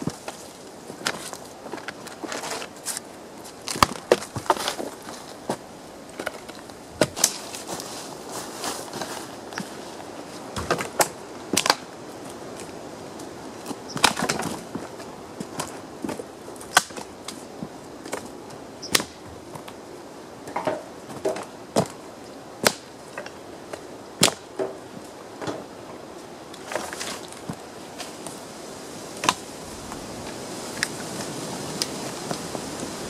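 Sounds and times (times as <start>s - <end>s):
dry branches snapping: 0.0s - 5.2s, 6.1s - 7.9s, 10.5s - 19.8s, 22.6s - 25.7s, 29.2s - 32.5s
twigs crackling: 0.0s - 33.0s.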